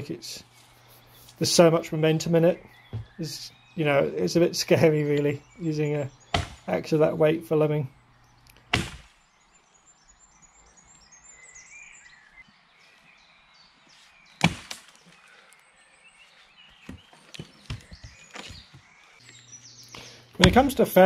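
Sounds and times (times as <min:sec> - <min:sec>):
birds chirping: 0:00.0 - 0:21.0
axe chopping wood: 0:06.3 - 0:06.7, 0:08.7 - 0:09.2, 0:14.4 - 0:15.0, 0:20.4 - 0:20.7.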